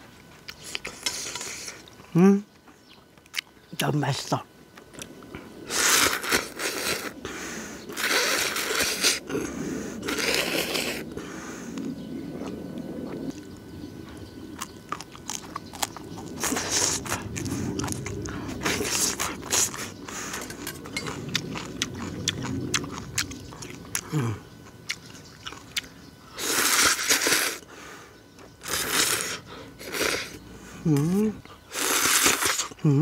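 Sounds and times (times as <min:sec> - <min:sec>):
slurping noodles: 0:05.7 - 0:07.2, 0:07.9 - 0:11.2, 0:26.4 - 0:27.6, 0:28.6 - 0:30.4, 0:31.7 - 0:32.8
mouth smacks and chewing: 0:14.6 - 0:24.2, 0:24.8 - 0:25.9.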